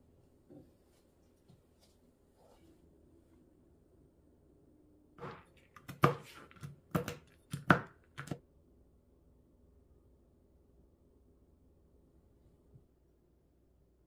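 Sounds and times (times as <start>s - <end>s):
knife chopping on cutting board: 5.2s - 8.4s.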